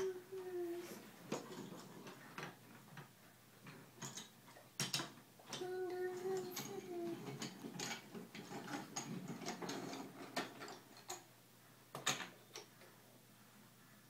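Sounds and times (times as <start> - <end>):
wooden toy train pieces clicking: 4.0 - 11.2.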